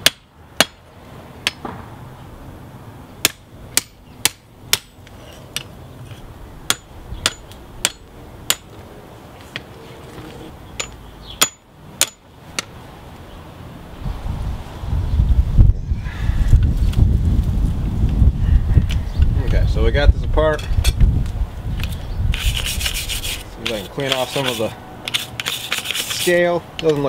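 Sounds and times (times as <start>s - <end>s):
hammer striking metal on anvil: 6.7s - 8.7s, 10.8s - 12.2s.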